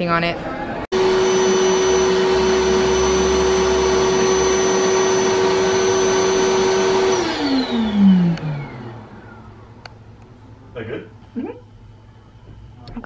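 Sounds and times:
electric air pump whining: 0.9s - 10.5s.

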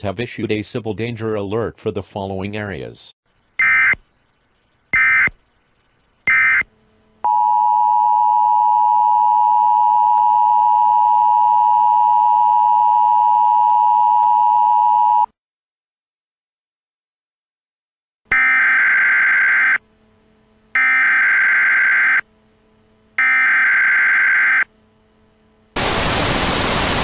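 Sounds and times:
data tone bursts: 4.9s - 6.7s
two-tone electronic alert tone: 6.3s - 6.7s.

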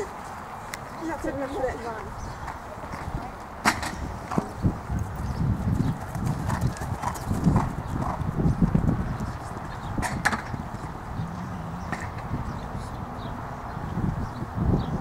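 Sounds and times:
horse hoofbeats on grass: 4.3s - 11.0s.

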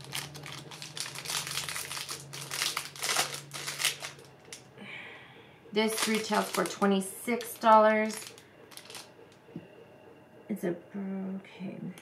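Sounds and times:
packaging crinkling and rustling: 0.0s - 4.7s, 5.8s - 9.1s.

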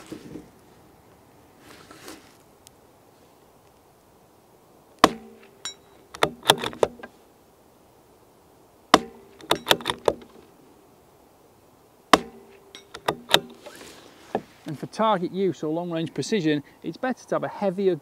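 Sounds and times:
rifle shot crack: 5.0s - 5.6s
rifle bolt clicks: 5.0s - 7.1s, 9.0s - 10.3s, 12.2s - 13.7s.

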